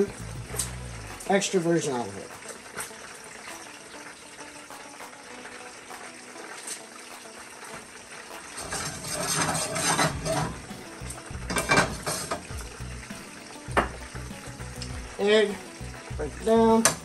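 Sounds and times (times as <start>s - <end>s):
oil trickling into pan: 0.0s - 17.0s
pan knocking on burner grate: 8.3s - 15.2s.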